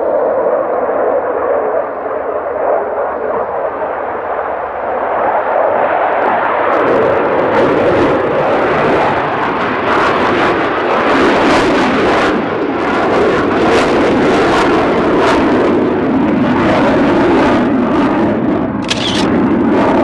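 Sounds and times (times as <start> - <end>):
jet engine crackle: 16.5 - 20.0
jet fighter rushing noise: 18.8 - 20.0.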